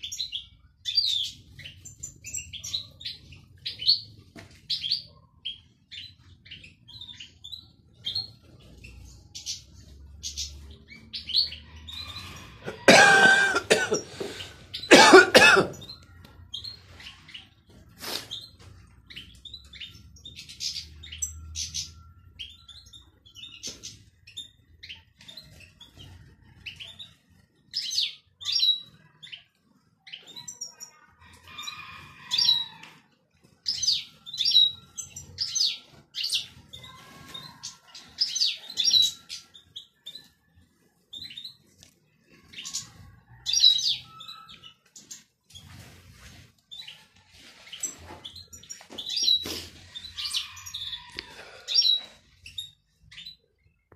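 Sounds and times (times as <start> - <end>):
birds twittering: 0.0 - 53.9.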